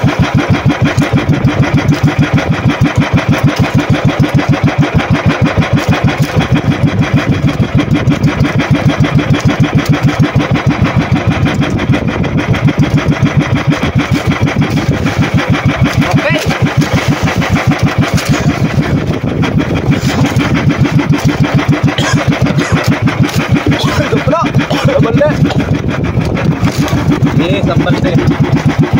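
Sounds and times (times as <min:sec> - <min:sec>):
boat engine thudding: 0:00.0 - 0:28.9.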